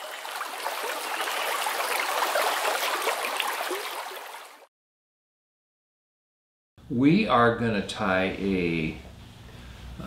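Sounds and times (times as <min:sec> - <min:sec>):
stream water rushing and bubbling: 0:00.0 - 0:04.7.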